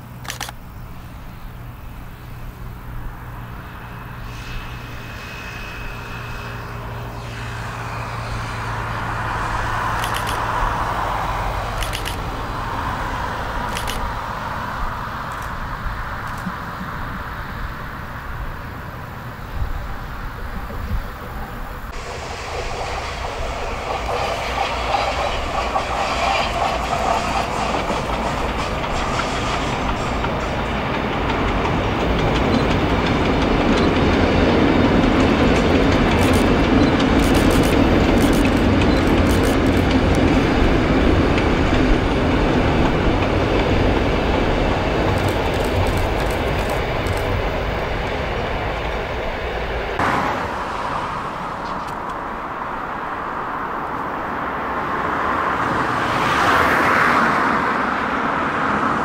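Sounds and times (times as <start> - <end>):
train rumbling over bridge: 0.0 - 59.0
wheels clattering over rails: 21.9 - 47.8.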